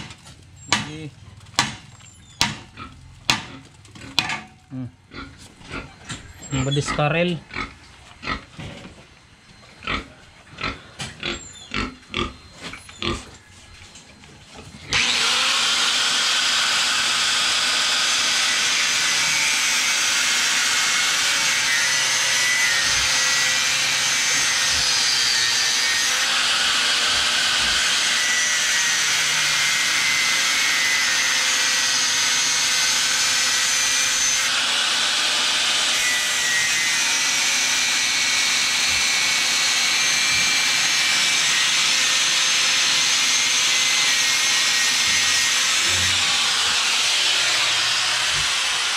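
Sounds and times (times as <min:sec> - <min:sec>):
pigs grunting: 0:02.6 - 0:08.9, 0:09.7 - 0:13.6
angle grinder cutting steel: 0:14.9 - 0:48.9.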